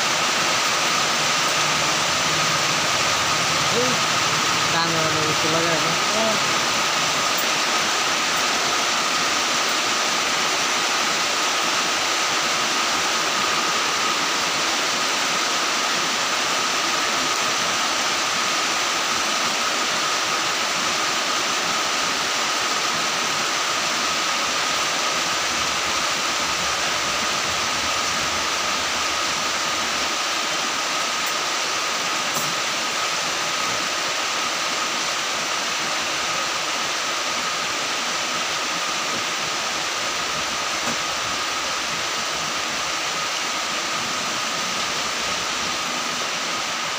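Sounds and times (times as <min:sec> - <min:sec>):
steady rushing noise: 0:00.0 - 0:33.8.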